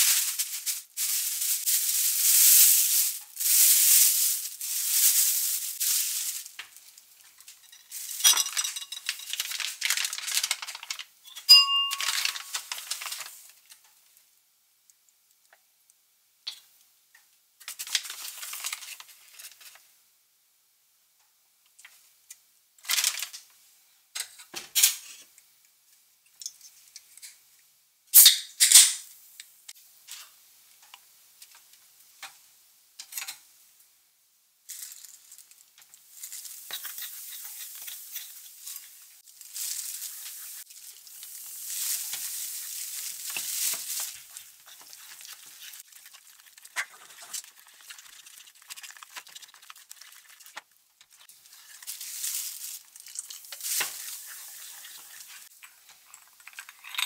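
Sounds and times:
spatula scraping flour in bowl: 0:36.7 - 0:38.9.

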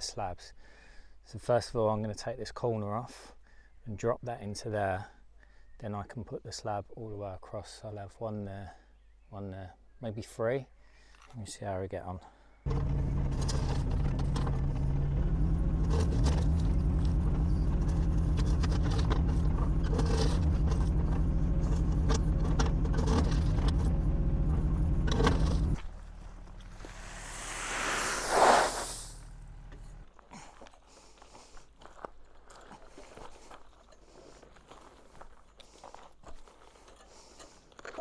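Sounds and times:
excavator diesel engine running: 0:12.7 - 0:28.2, 0:28.8 - 0:30.0
hydraulic hiss: 0:26.7 - 0:29.3.

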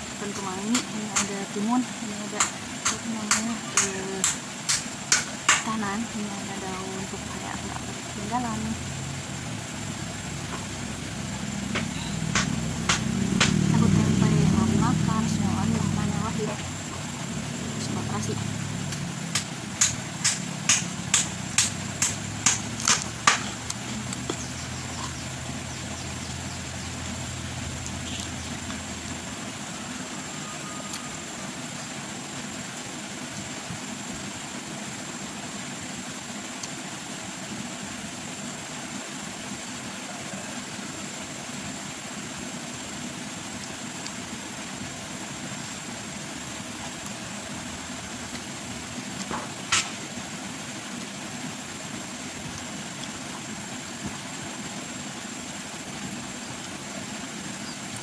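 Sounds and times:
low hum: 0:00.0 - 0:34.6
crunchy chewing of raw vegetables: 0:18.9 - 0:29.0.

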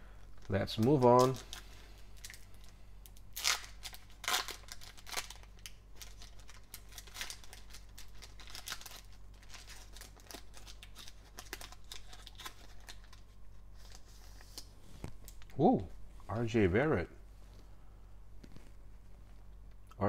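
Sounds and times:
foil wrapper tearing and crinkling: 0:00.3 - 0:02.6, 0:03.2 - 0:14.7.

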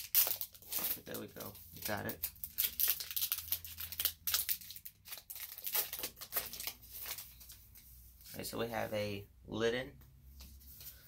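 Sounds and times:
foil wrapper tearing and crinkling: 0:00.0 - 0:07.2.

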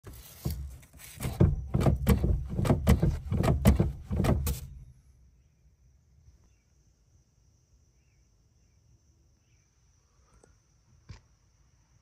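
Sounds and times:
brake pedal knocking: 0:00.1 - 0:04.9.

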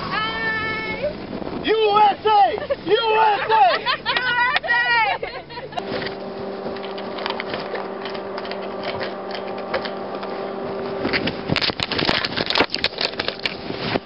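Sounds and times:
steady hum: 0:00.9 - 0:14.0
fabric rubbing on microphone: 0:05.8 - 0:14.0.

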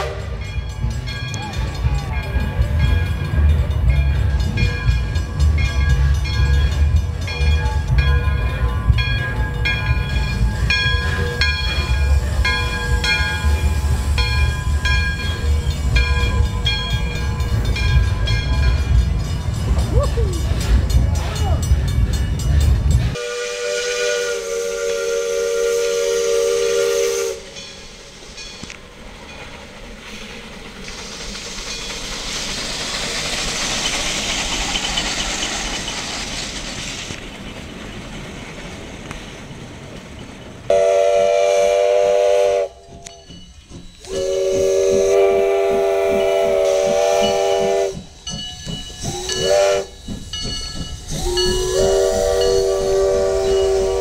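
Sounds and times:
steam whistle chord blasts: 0:00.0 - 0:00.6, 0:23.1 - 0:27.6, 0:40.7 - 0:42.9, 0:44.0 - 0:48.1, 0:49.1 - 0:50.0, 0:51.1 - 0:54.0
steam hissing: 0:08.8 - 0:54.0.

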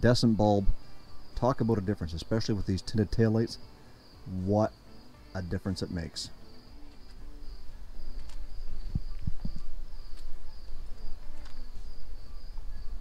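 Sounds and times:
insects chirring: 0:00.0 - 0:13.0.

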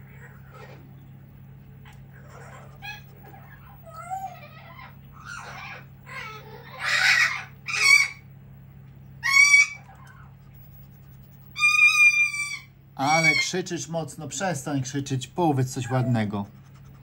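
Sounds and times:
parrots screeching: 0:02.2 - 0:08.3, 0:09.2 - 0:10.4, 0:11.5 - 0:13.6.

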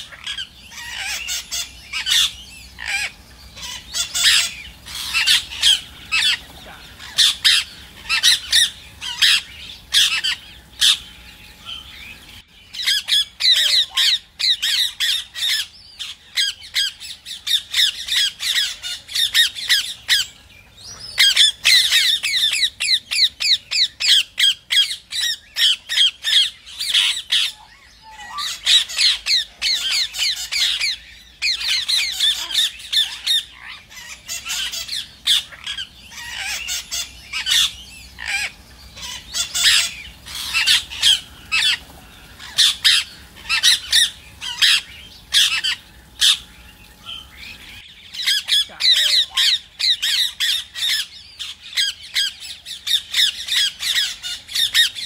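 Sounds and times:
parakeets squawking: 0:00.0 - 0:55.0.

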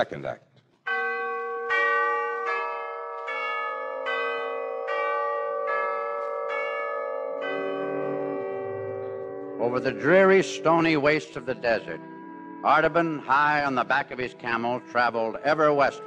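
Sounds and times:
chimes playing slow melody: 0:01.0 - 0:16.0.

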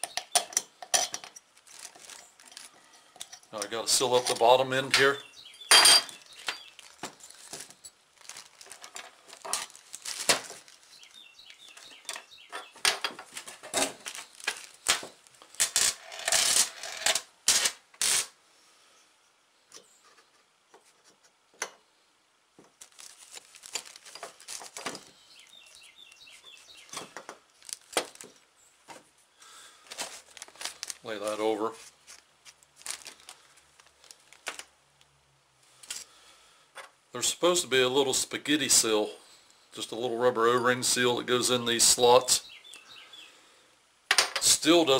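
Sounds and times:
metal engine parts clinking: 0:00.0 - 0:01.5
plastic sheeting crinkling: 0:01.5 - 0:02.9, 0:06.2 - 0:12.1, 0:13.2 - 0:16.7, 0:22.6 - 0:28.5, 0:29.4 - 0:34.8.

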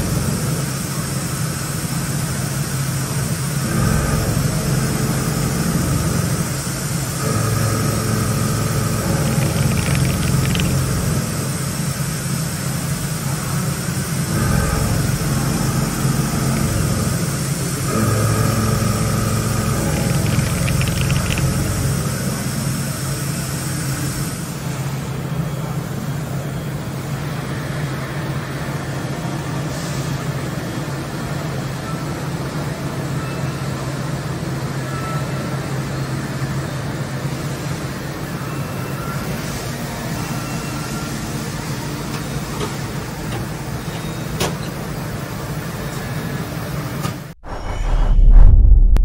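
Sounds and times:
machine humming: 0:07.2 - 0:11.8, 0:14.3 - 0:22.9
sharp clicks: 0:09.2 - 0:10.9, 0:19.8 - 0:21.8.

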